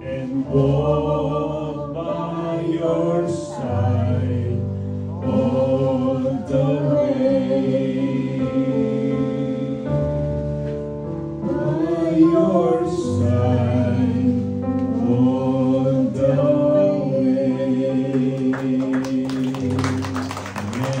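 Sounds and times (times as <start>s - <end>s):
man and woman singing duet: 0.0s - 10.1s, 11.4s - 19.9s
sharp claps: 18.6s - 21.0s.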